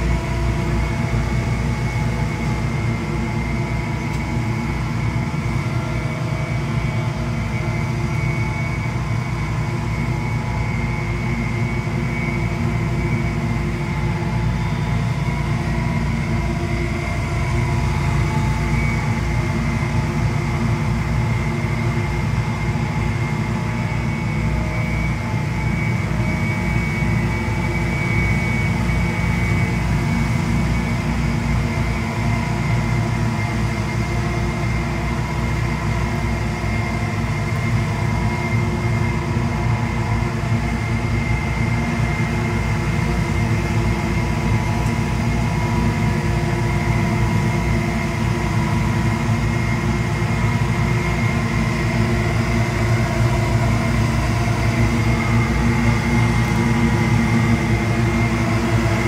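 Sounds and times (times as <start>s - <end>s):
leaf blowers running: 54.6s - 59.0s.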